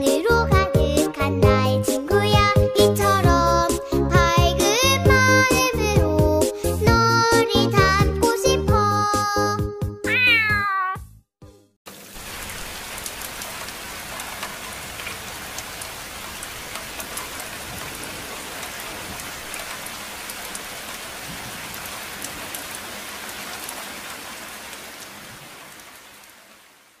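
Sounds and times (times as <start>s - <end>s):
raindrop ticks: 11.9s - 26.6s
steady rain falling: 11.9s - 27.0s.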